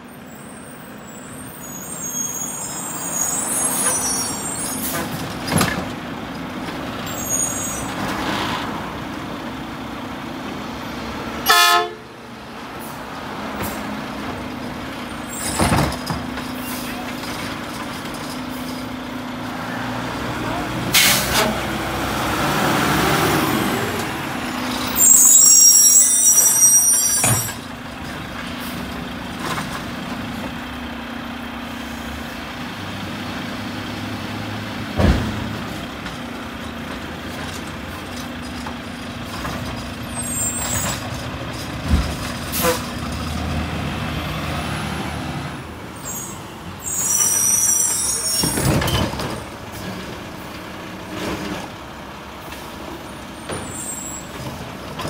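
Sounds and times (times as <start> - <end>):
air brakes hissing: 0.6 - 5.1, 46.0 - 48.9.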